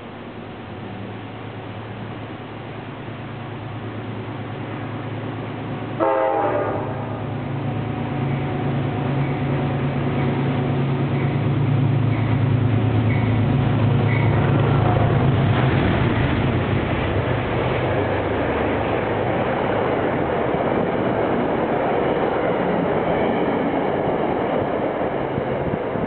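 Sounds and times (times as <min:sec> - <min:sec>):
train wheels rushing on rail: 0:00.0 - 0:26.0
locomotive low hum: 0:06.8 - 0:26.0.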